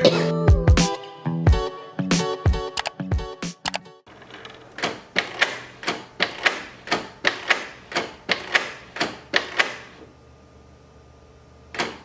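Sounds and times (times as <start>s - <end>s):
printer mechanism clicking and whirring: 3.6s - 10.0s, 11.7s - 12.0s.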